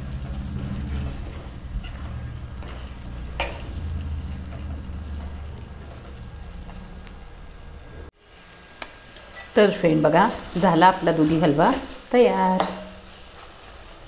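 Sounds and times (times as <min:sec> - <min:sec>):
low hum: 0:00.0 - 0:08.1
light sizzle: 0:00.0 - 0:14.0
spatula scraping a steel pan: 0:00.1 - 0:03.9.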